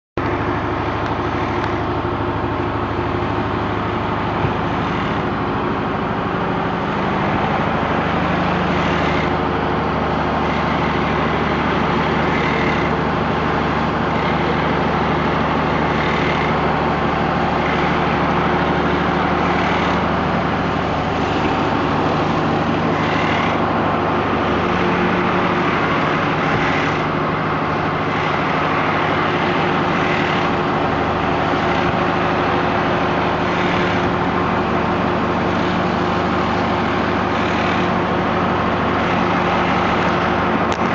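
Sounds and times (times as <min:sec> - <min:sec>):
machinery low drone: 0:00.2 - 0:40.9
short repeating machine sound: 0:10.2 - 0:23.8, 0:27.9 - 0:40.9.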